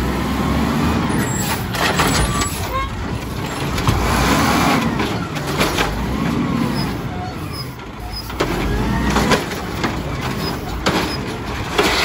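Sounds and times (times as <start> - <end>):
truck engine and hydraulics: 0.0 - 12.0.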